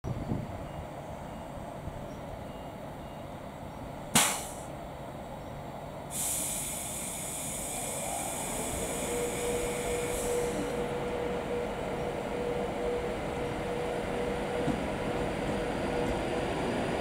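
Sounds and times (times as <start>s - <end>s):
air brakes hissing: 4.2s - 4.7s, 6.1s - 10.8s
sharp burst of hissing air: 4.2s - 4.7s, 6.1s - 10.8s.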